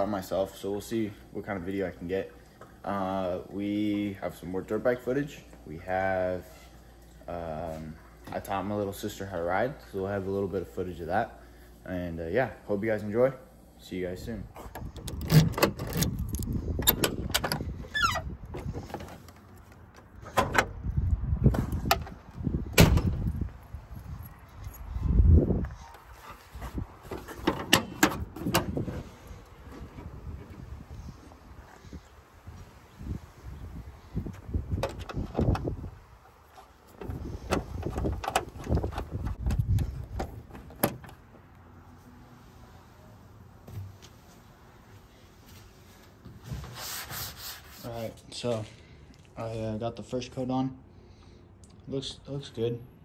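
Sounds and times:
low rumbling handling noise: 14.4s - 41.9s
latch and lever clicks: 14.7s - 19.2s, 27.1s - 28.8s, 34.8s - 35.8s, 37.0s - 41.2s.

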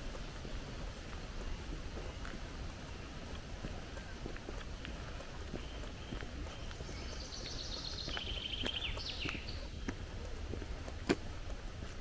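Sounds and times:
footsteps on gravel: 0.0s - 12.0s
songbird singing: 0.0s - 12.0s.

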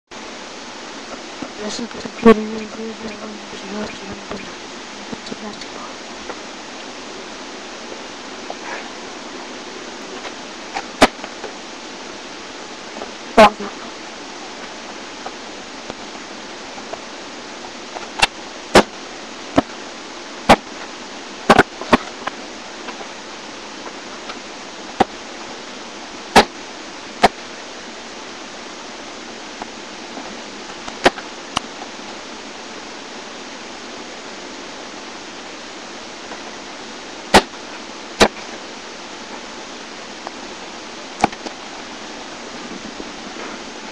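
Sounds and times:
microphone hiss: 0.1s - 43.9s.

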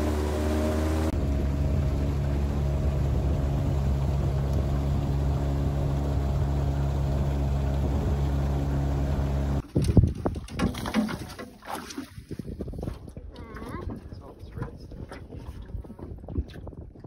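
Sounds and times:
outboard motor running: 0.0s - 11.8s
knocks and clatter: 9.6s - 11.6s.

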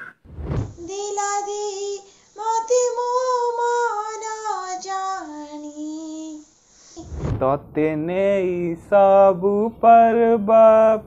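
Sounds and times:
woman singing unaccompanied: 0.8s - 6.5s.

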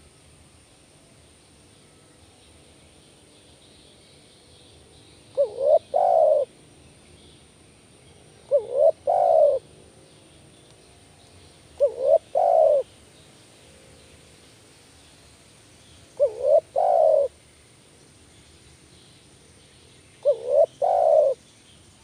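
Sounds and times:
dove cooing: 5.3s - 6.5s, 8.5s - 9.7s, 11.8s - 12.9s, 16.2s - 17.3s, 20.2s - 21.4s.

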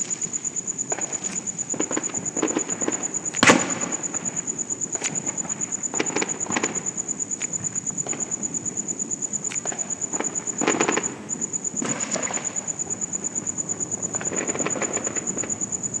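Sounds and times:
fireworks crackling: 0.0s - 8.4s, 9.5s - 15.9s
fireworks bangs and pops: 0.9s - 8.3s, 9.5s - 12.7s, 14.0s - 15.7s.

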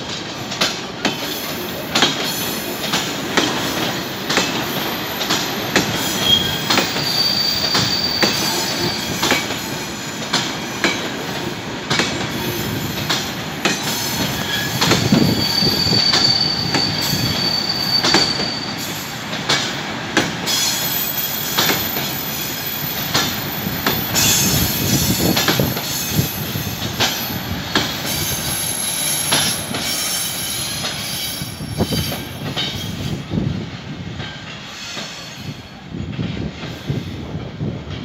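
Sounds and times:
wheels clacking over rail joints: 0.0s - 31.2s
train wheels rumbling: 0.0s - 38.0s
wheel squeals: 4.6s - 9.5s, 14.0s - 19.0s.

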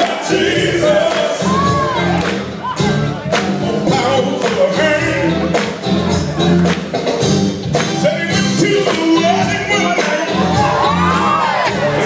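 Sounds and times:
man singing gospel: 0.0s - 1.7s, 3.6s - 5.5s, 7.9s - 10.6s
live band playing: 0.0s - 12.0s.

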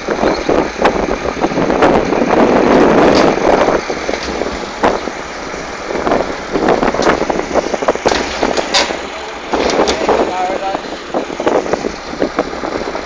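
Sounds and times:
tractor engine running: 0.0s - 13.0s
wind buffeting microphone: 0.0s - 13.0s
sharp knocks: 8.0s - 10.3s.

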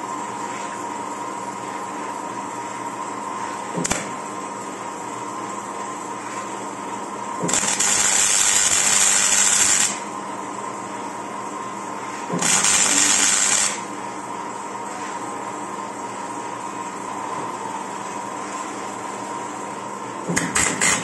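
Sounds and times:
welder machine hum: 0.0s - 21.0s
welding arc crackling hiss: 3.8s - 4.2s, 7.4s - 10.1s, 12.3s - 13.9s, 20.4s - 21.0s.

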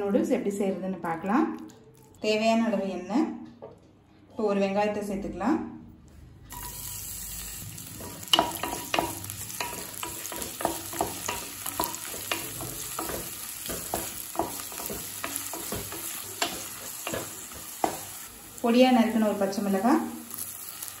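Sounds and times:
onion sizzling in hot oil: 6.5s - 21.0s.

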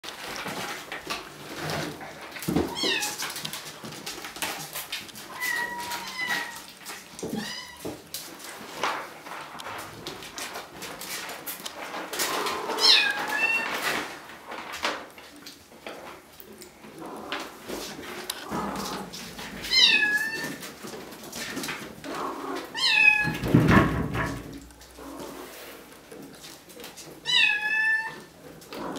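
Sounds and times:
clicks and scratches: 0.0s - 28.9s.

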